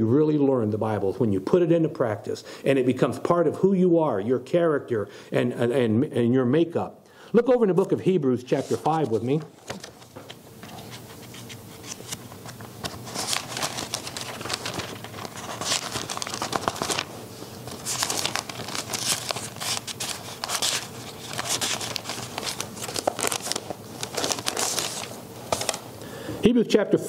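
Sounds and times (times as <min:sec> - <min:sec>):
pages being turned: 0:07.8 - 0:25.9.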